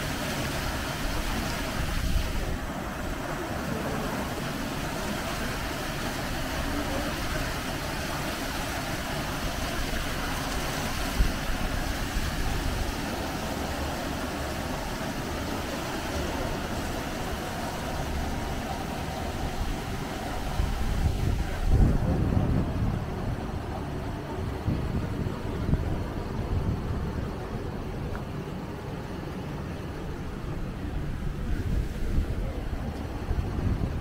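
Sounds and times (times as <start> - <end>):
waterfall rushing: 0.0 - 24.6.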